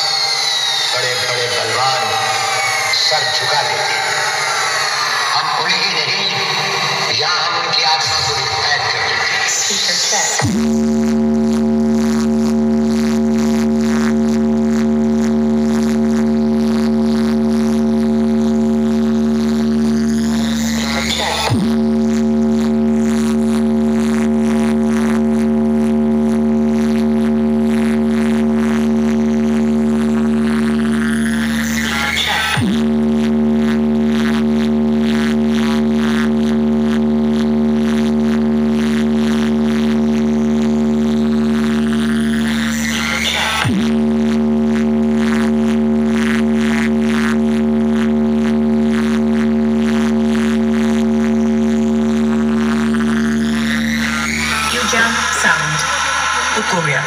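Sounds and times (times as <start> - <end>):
loud droning note from speakers: 0.0 - 57.0
loud held note from speakers: 53.9 - 57.0.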